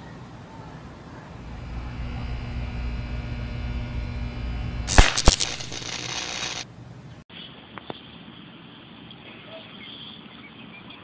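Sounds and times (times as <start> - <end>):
electrical hum: 1.1 - 7.2
electric arc cracks: 1.4 - 6.7
arc hiss: 4.8 - 6.6.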